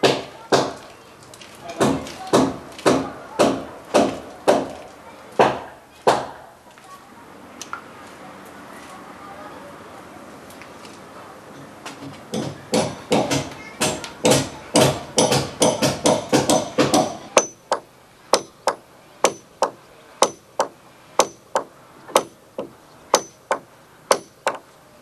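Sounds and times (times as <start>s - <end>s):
hammer striking timber beam: 0.0s - 0.8s, 1.8s - 4.8s, 5.4s - 6.4s, 12.0s - 24.7s.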